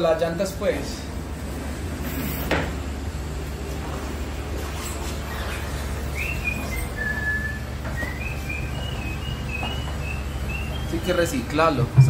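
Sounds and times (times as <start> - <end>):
steady low hum: 0.0 - 12.0
whistled notes: 6.1 - 11.3.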